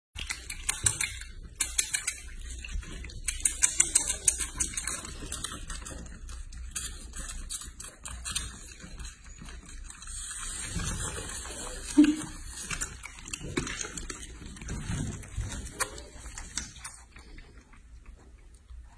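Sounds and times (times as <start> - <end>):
piglet sucking bottle teat clicks: 0.2 - 9.3.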